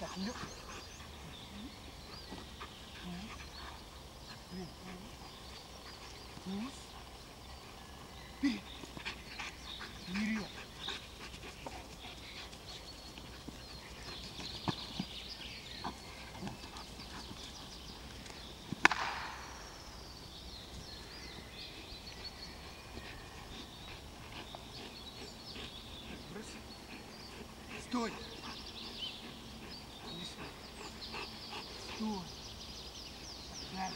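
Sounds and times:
dog panting: 0.0 - 18.7, 20.6 - 33.9
sharp crack: 18.8 - 19.6.

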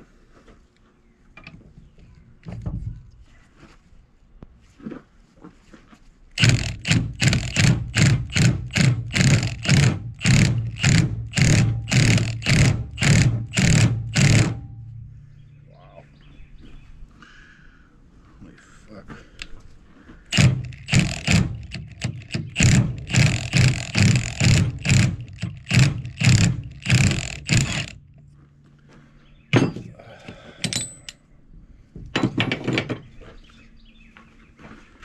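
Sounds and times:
impact wrench hammering: 6.4 - 15.1, 20.3 - 28.2, 29.6 - 30.0, 30.6 - 31.2.

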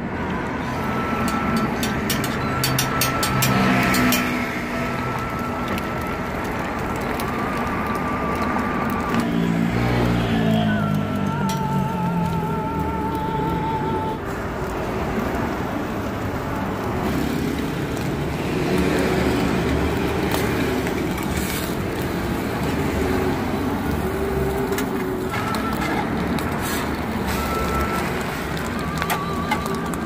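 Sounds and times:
street traffic: 0.0 - 30.0
food frying on a griddle: 0.5 - 30.0
metal tongs and spatula clicks: 1.3 - 4.4.

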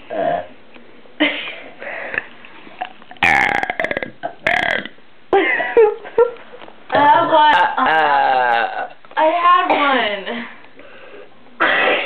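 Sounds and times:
girls burping: 3.2 - 4.9.

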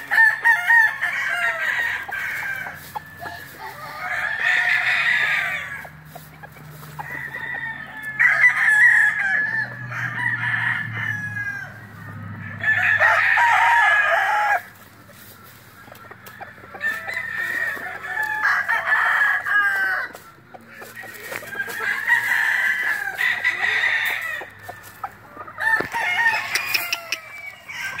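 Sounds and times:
rooster crowing: 0.0 - 6.0, 6.7 - 14.8, 16.2 - 28.0
hen clucking: 0.0 - 10.0, 11.6 - 28.0.

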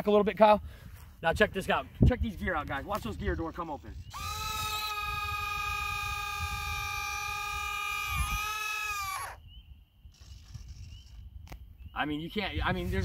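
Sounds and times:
retract motors whining: 4.0 - 9.4.

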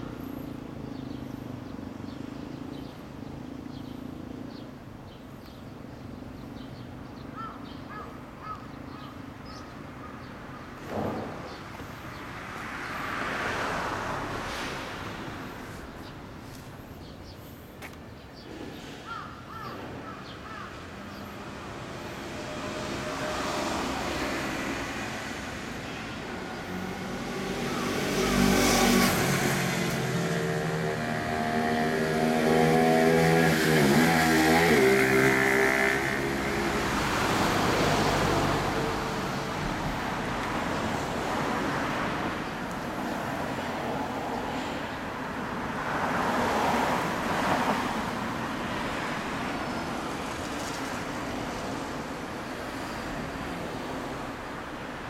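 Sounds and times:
steady road noise: 0.0 - 55.0
vehicle passing by: 10.9 - 17.6, 21.3 - 55.0.

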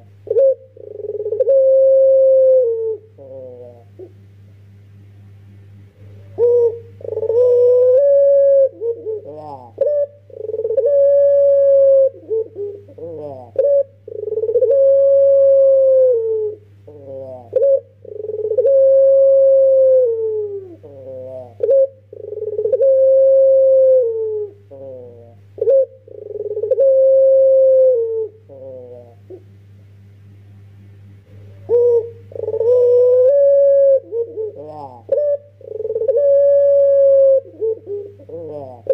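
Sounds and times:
dove cooing: 0.0 - 4.2, 6.0 - 29.6, 31.3 - 38.9
steady low hum: 0.0 - 38.9.

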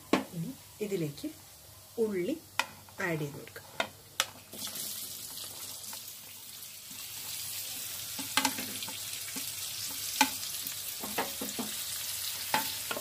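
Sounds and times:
onions sizzling in hot oil: 0.0 - 13.0
utensils knocking against pan: 11.0 - 11.8.

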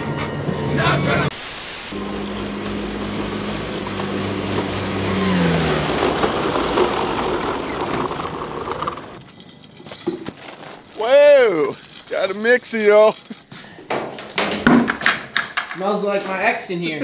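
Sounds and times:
tracked vehicle engine running: 2.0 - 9.8.

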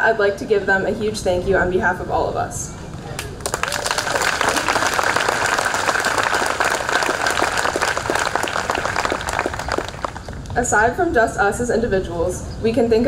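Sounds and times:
audience applauding: 3.2 - 10.6.

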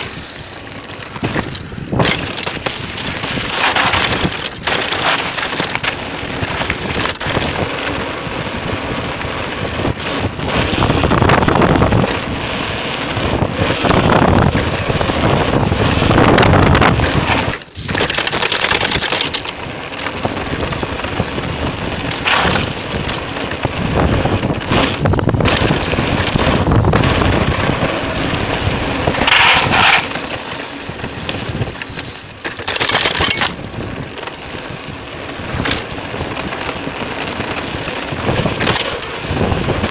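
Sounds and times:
bike clattering over bumps: 0.0 - 39.9
tyre rumble: 0.0 - 39.9
wind buffeting microphone: 0.0 - 39.9.

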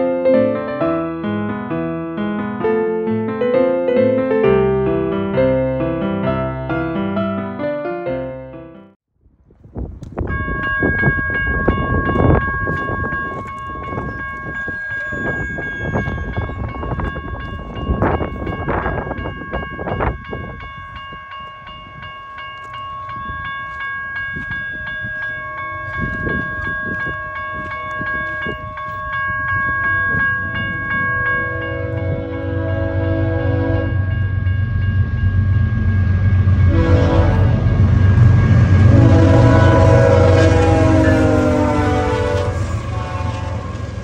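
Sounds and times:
freight train rumble: 9.4 - 44.0
crossing warning bell ringing: 10.1 - 44.0.

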